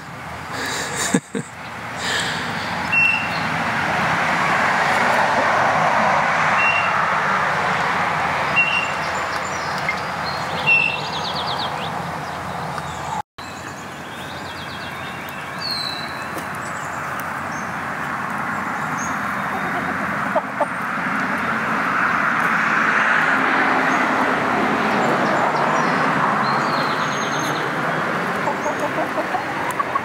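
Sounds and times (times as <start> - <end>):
faint bird calls: 19.1 - 21.5.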